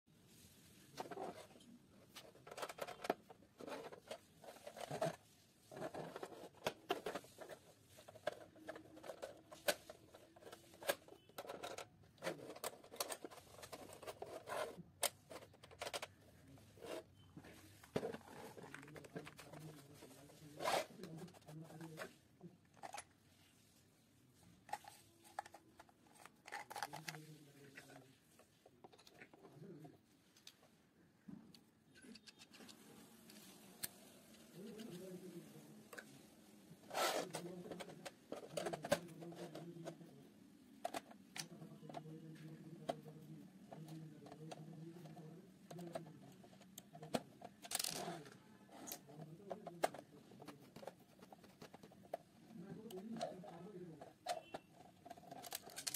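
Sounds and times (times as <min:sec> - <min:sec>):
screwdriver scrape: 0:20.6 - 0:21.1, 0:36.9 - 0:37.4.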